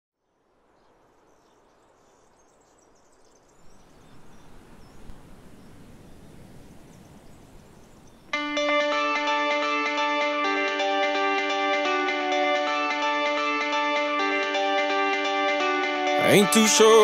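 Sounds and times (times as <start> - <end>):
guitar music: 8.3 - 17.0.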